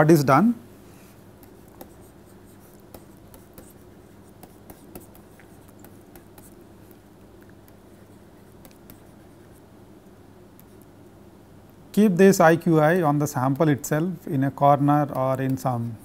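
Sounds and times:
low electrical hum: 0:00.0 - 0:16.0
stylus tapping and scratching on tablet: 0:01.2 - 0:11.1, 0:12.7 - 0:13.9, 0:14.6 - 0:16.0.

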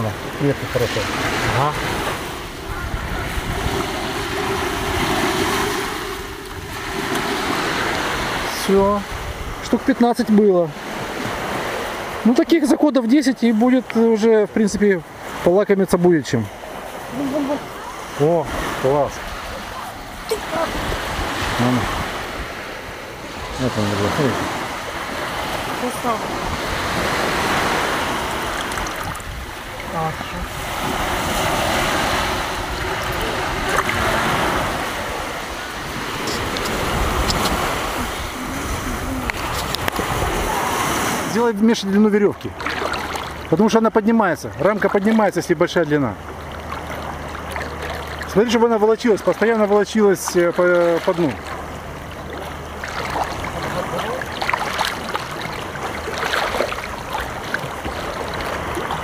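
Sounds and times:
sea waves breaking on shore: 0:00.0 - 0:59.0
seawater sloshing and lapping: 0:00.0 - 0:59.0
wind buffeting microphone: 0:01.2 - 0:09.9, 0:18.5 - 0:41.3
splashes of man wading: 0:24.4 - 0:41.3, 0:42.5 - 0:43.7, 0:44.6 - 0:59.0.

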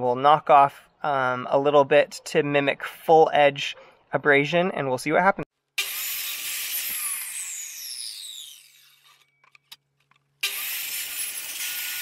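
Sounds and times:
miter saw cutting wood: 0:05.8 - 0:09.3, 0:10.4 - 0:12.0
saw blade spinning down: 0:05.8 - 0:09.3, 0:10.4 - 0:12.0.

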